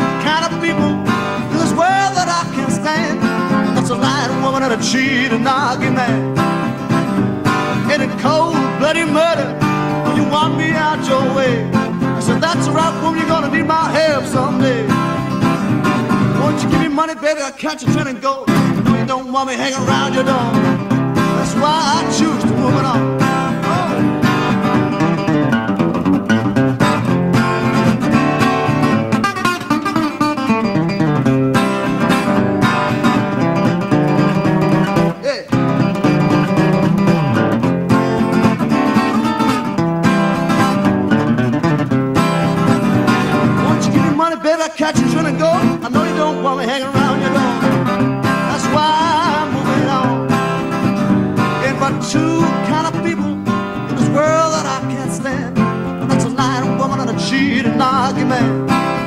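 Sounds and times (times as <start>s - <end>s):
fingerpicked acoustic guitar: 0.0s - 59.0s.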